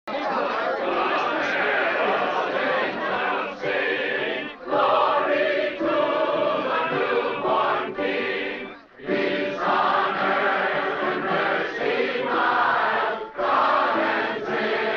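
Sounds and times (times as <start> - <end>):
crowd singing a carol: 0.1 - 14.9.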